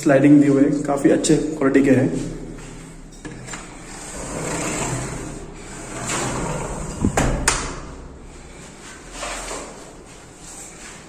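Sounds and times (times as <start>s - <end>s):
sliding window rolling rumble: 3.8s - 8.4s.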